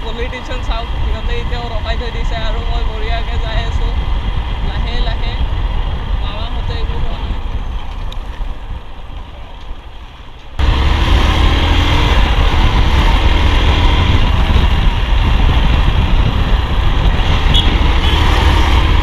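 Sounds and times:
road noise: 0.0 - 19.0
wind rushing over microphone: 0.0 - 19.0
motorcycle engine: 10.6 - 19.0.

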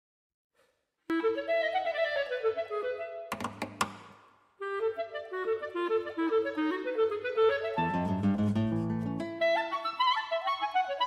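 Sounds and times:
clarinet melody: 1.1 - 3.4, 4.6 - 11.0.

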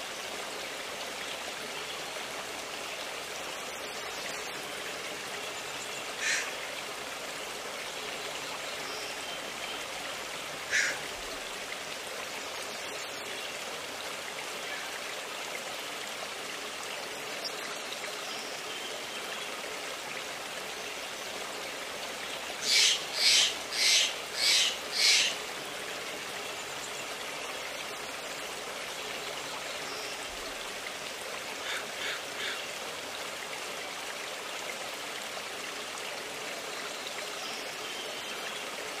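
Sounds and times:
stream rushing: 0.0 - 39.0
bird calling: 10.7 - 11.0, 22.6 - 25.4.

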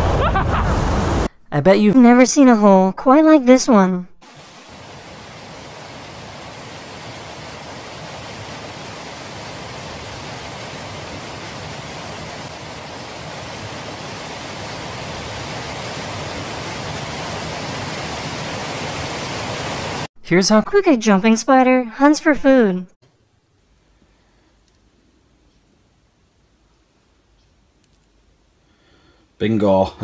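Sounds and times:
falling water rushing: 4.2 - 20.1.

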